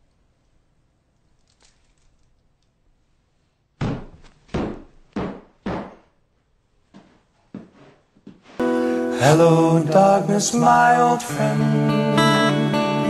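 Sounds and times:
heavy footsteps on carpet: 3.8s - 6.1s, 6.9s - 8.6s.

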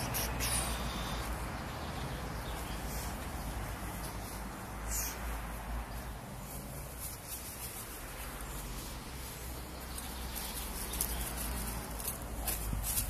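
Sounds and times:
dry leaves rustling: 2.4s - 13.0s.

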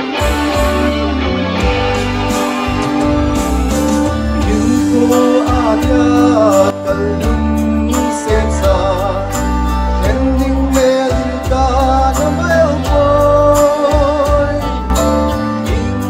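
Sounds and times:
amplified backing music: 0.0s - 16.0s
man singing into a microphone: 4.3s - 16.0s.

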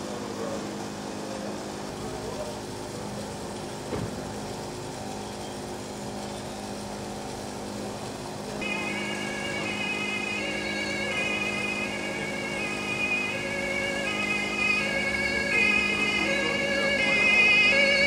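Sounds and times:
steady low hum: 0.0s - 18.0s
two-tone siren: 8.6s - 18.0s.

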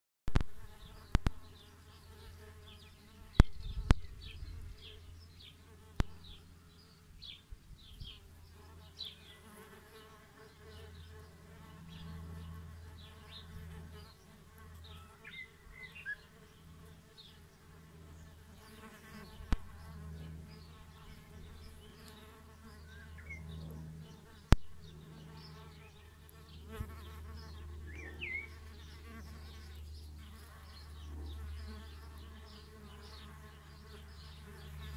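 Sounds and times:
bees buzzing: 8.5s - 34.9s.

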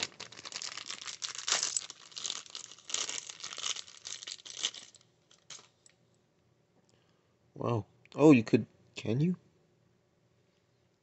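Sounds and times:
plastic packaging crinkling and tearing: 0.0s - 5.8s.

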